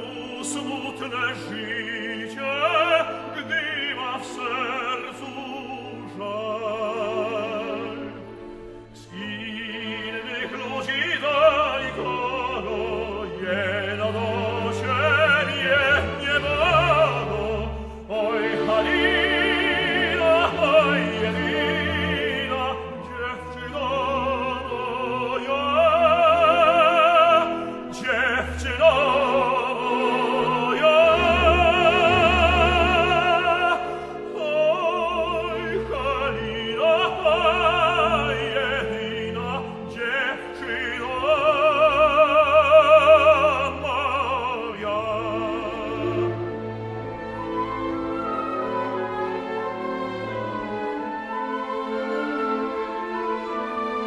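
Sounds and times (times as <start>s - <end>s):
operatic tenor singing: 0.0s - 54.0s
symphony orchestra: 0.0s - 54.0s.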